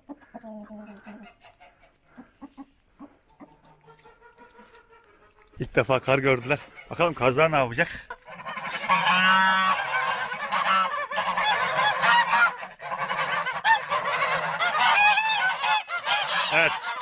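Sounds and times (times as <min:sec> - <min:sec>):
geese honking: 0:03.6 - 0:17.0.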